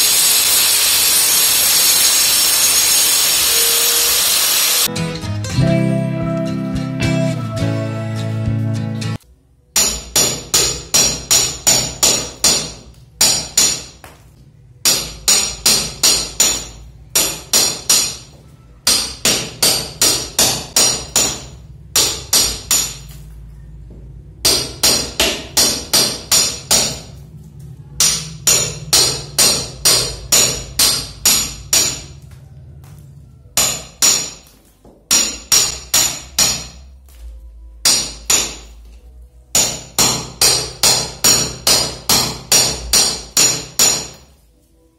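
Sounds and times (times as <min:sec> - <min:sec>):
hammer striking steel chisel: 0:09.8 - 0:14.1, 0:14.8 - 0:23.2, 0:24.4 - 0:27.2, 0:28.0 - 0:32.2, 0:33.6 - 0:36.9, 0:37.8 - 0:38.8, 0:39.5 - 0:44.3.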